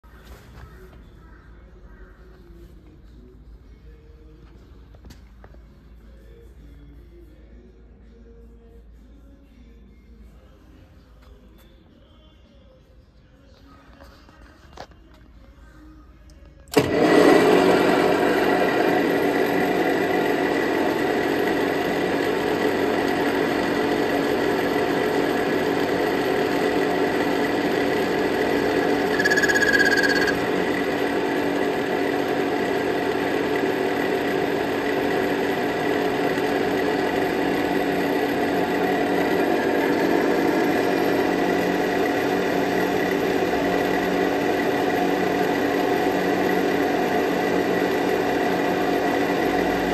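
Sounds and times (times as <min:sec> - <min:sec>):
lathe gears whining: 0:16.7 - 0:49.9
higher-pitched squeal: 0:28.9 - 0:30.7.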